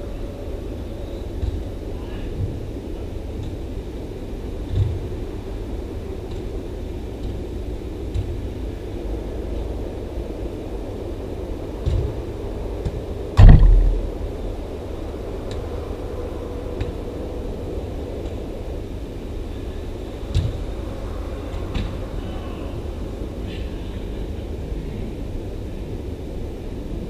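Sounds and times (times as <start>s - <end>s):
ball thuds: 13.4s - 14.5s
low rumble: 13.4s - 15.0s.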